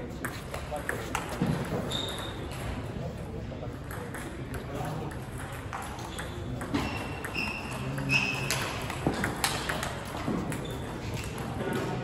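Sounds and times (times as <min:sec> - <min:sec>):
short high squeaks: 0:01.8 - 0:02.5, 0:06.1 - 0:08.7.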